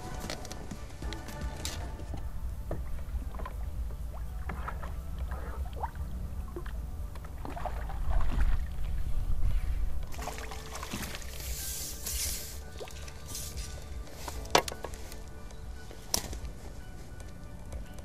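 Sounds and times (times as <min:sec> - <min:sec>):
wind rumbling on microphone: 0:00.0 - 0:11.2
water splashing and sloshing: 0:00.0 - 0:16.9.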